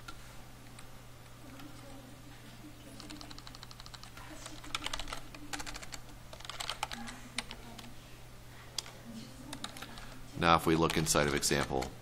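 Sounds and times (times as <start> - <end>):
computer keyboard typing: 2.9 - 7.9, 8.8 - 12.0.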